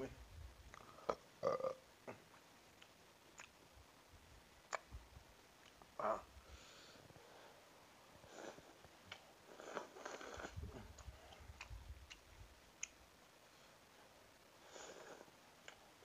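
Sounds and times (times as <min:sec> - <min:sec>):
chewing and slurping noodles: 0:08.4 - 0:12.2.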